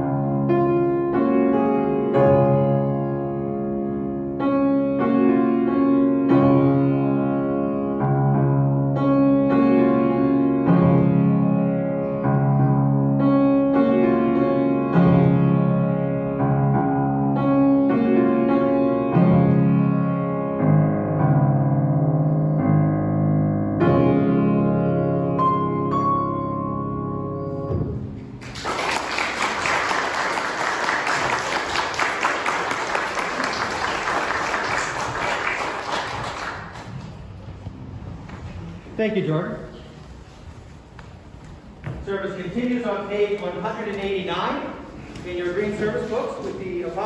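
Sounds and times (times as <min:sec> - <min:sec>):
piano playing slow chords: 0:00.0 - 0:28.6, 0:29.5 - 0:40.4
congregation applauding: 0:28.4 - 0:37.3.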